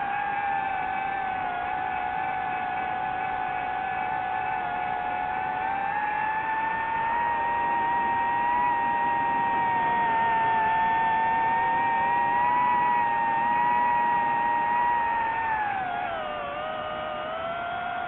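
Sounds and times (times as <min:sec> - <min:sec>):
drone propellers whining: 0:05.4 - 0:18.0.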